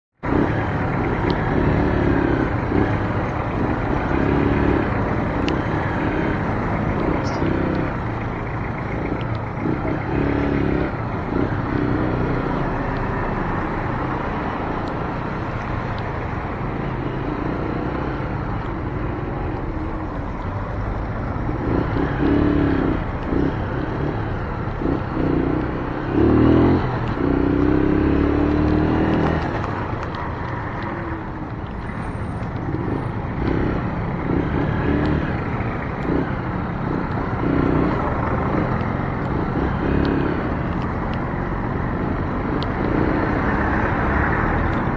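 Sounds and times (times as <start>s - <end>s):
other vehicle engines: 0.1s - 44.9s
motorcycle engine running: 0.2s - 44.9s
tyre noise on wet road: 9.0s - 44.9s.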